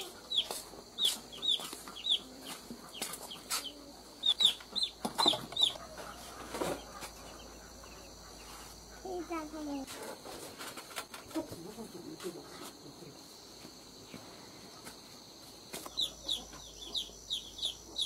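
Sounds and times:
high falling peeps: 0.0 - 9.2
chickens clucking: 0.0 - 11.8, 14.6 - 18.0.

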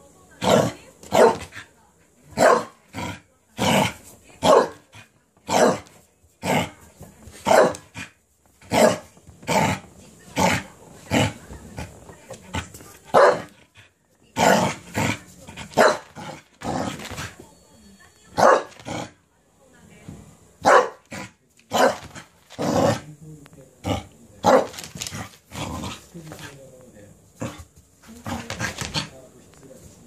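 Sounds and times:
dog barking sharply: 20.6 - 21.0.

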